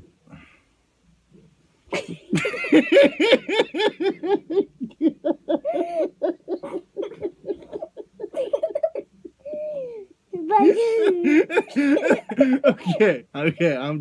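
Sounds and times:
child giggling: 2.0s - 13.2s.

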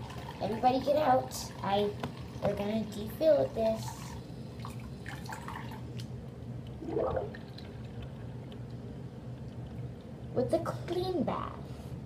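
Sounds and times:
steady low hum: 0.0s - 12.0s
water dripping and sloshing: 3.8s - 10.3s.

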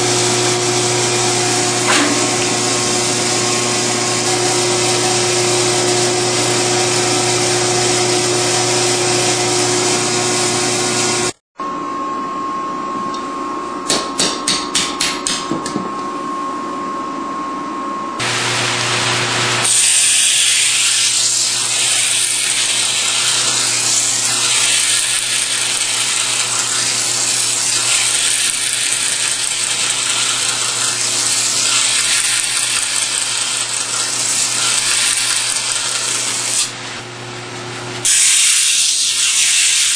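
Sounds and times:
steady whine: 0.0s - 19.7s
machine hum: 0.0s - 38.1s
grinding wheel on knife blade: 19.6s - 36.8s.

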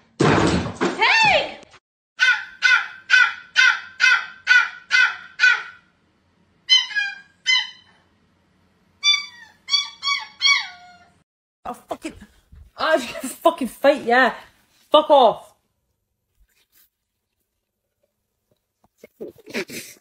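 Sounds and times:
puppy whining and howling: 6.7s - 8.0s, 9.0s - 11.2s.

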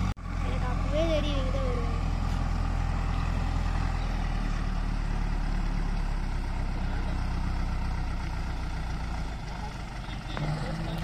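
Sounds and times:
tractor diesel engine idling: 0.0s - 11.0s.

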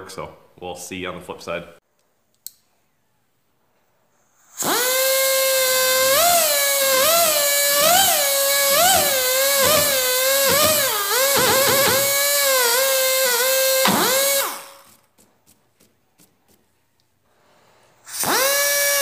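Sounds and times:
rotary tool whining: 4.4s - 15.2s, 18.1s - 19.0s.

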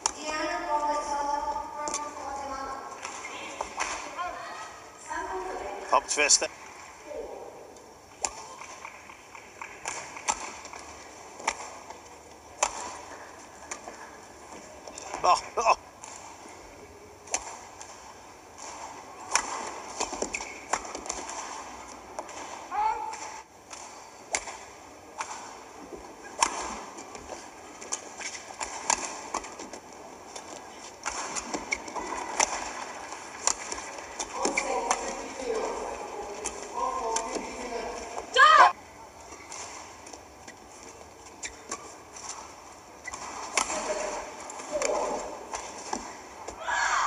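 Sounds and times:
faint arena noise: 0.0s - 47.0s
rackets striking shuttlecock: 12.6s - 13.9s, 18.6s - 22.5s, 23.1s - 29.8s, 30.4s - 35.3s, 41.4s - 46.6s.

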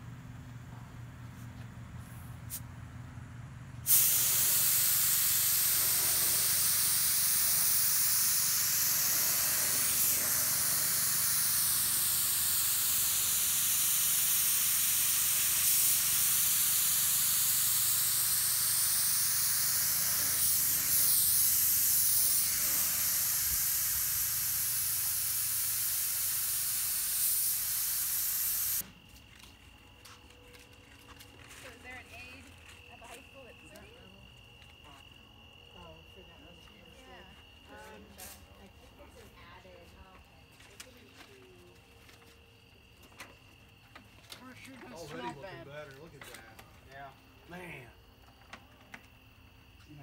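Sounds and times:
paint spray gun hissing: 3.9s - 28.9s.

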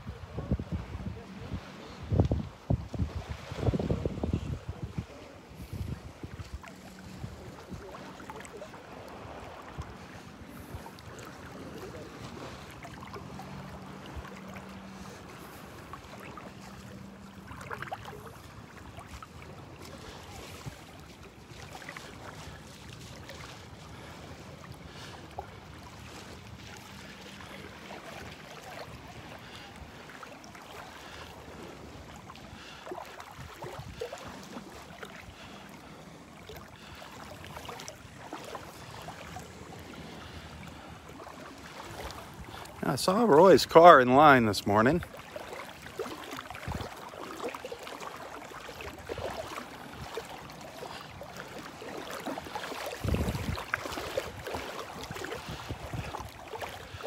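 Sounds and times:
surf: 0.0s - 57.0s
wind: 0.0s - 57.0s.

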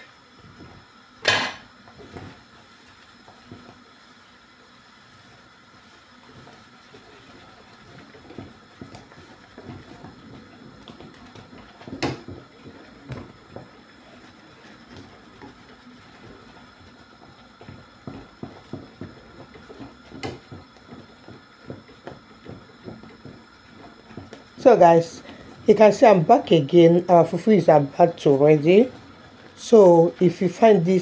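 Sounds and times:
dough thuds and squelches: 0.3s - 31.0s
spatula knocking against pot: 17.6s - 24.5s.

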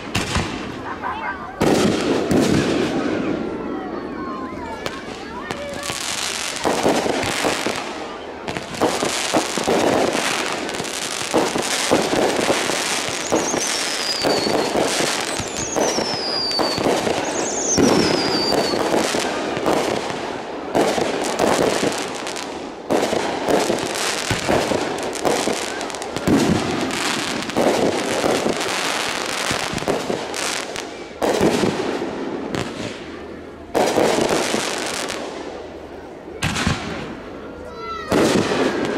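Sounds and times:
fireworks bangs and crackling: 0.0s - 38.9s
falling firework whistles: 11.4s - 19.3s.

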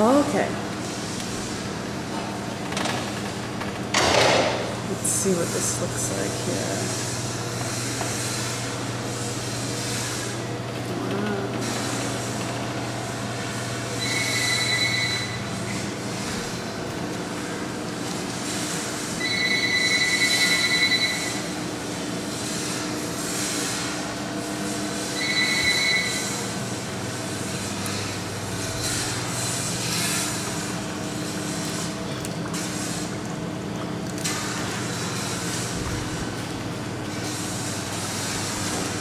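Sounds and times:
machinery humming: 0.0s - 39.0s.

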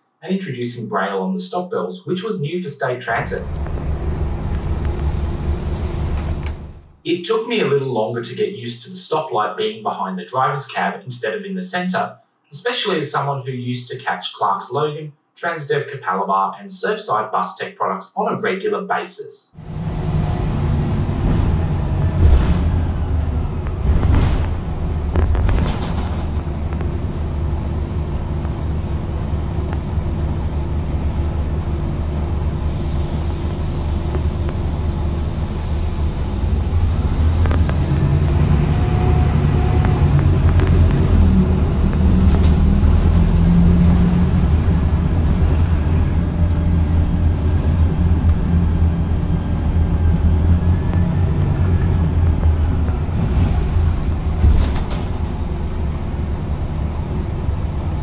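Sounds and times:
bus engine droning: 3.1s - 7.0s, 19.6s - 58.0s.

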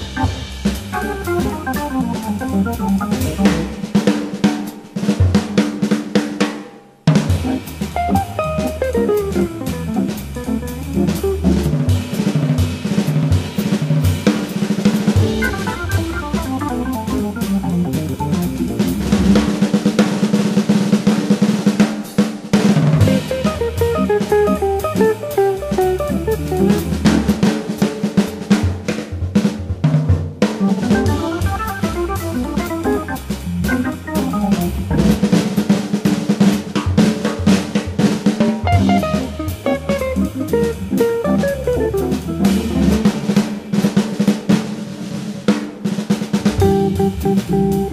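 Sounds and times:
organ bass line: 0.0s - 3.9s, 7.4s - 11.9s, 15.2s - 19.5s, 23.0s - 27.5s, 30.6s - 35.4s, 38.8s - 43.3s, 46.6s - 47.9s
jazz guitar phrase: 0.0s - 4.0s, 7.2s - 12.2s, 15.1s - 19.5s, 23.0s - 27.6s, 30.5s - 35.7s, 38.7s - 43.8s, 46.6s - 47.9s
drum kit playing: 0.0s - 47.9s.

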